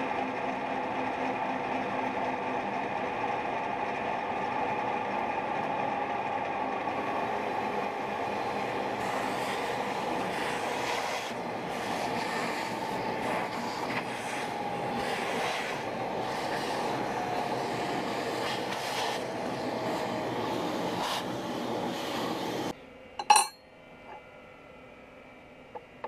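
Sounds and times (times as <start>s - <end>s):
shop vacuum running: 0.0s - 23.5s
metal wrench clink: 23.2s - 23.6s.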